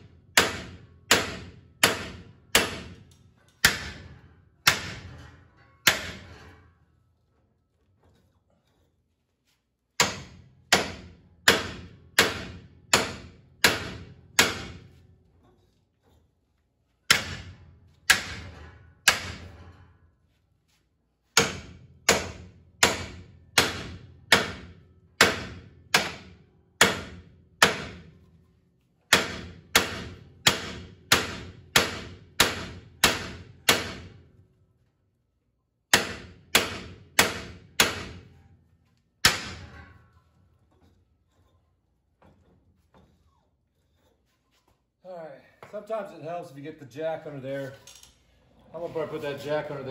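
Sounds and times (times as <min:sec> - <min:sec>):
hammer striking steel bar: 0:00.0 - 0:06.6, 0:10.0 - 0:15.0, 0:17.1 - 0:19.8, 0:21.3 - 0:28.2, 0:29.1 - 0:34.2, 0:35.9 - 0:38.4, 0:39.2 - 0:40.2.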